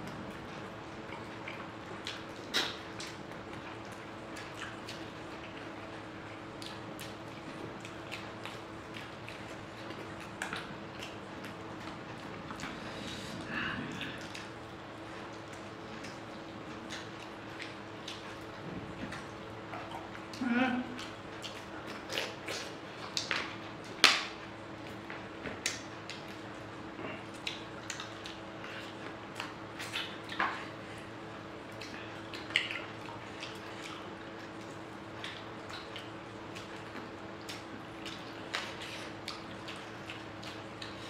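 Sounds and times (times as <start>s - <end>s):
wet mouth clicks and smacks: 1.1s - 3.5s, 25.4s - 26.5s, 27.3s - 28.4s, 31.8s - 41.0s.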